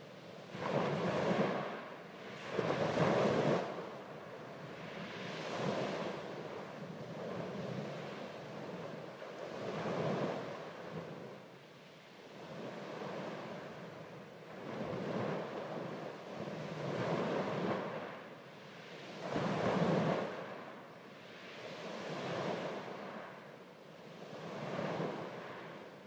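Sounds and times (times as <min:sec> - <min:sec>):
small waves washing over sand: 0:00.0 - 0:26.0.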